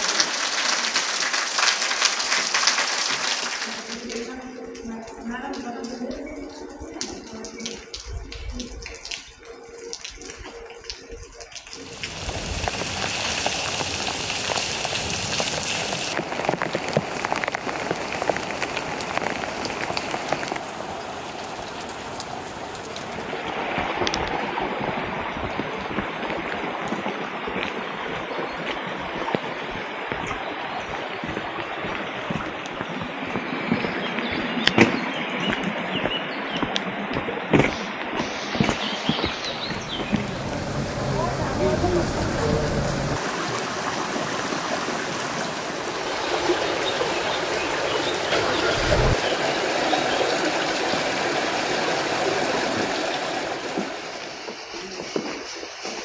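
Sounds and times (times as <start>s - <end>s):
raindrops clicking on hard surfaces: 0.0s - 23.6s, 39.2s - 55.4s
steady rain falling: 0.0s - 24.4s, 39.2s - 56.0s.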